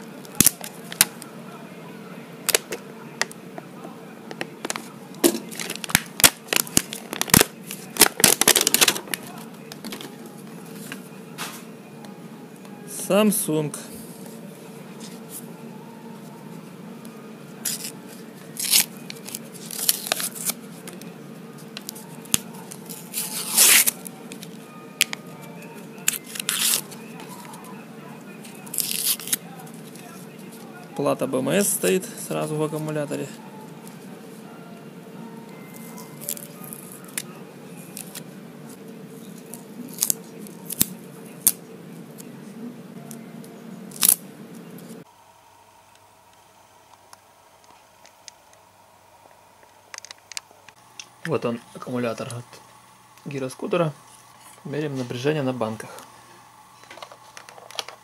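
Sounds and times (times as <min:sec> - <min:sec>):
steady low hum: 0:00.0 - 0:58.0
insulating wrap tearing and scraping: 0:05.4 - 0:09.4, 0:17.6 - 0:20.6, 0:21.8 - 0:24.1, 0:26.0 - 0:27.0, 0:28.5 - 0:29.4.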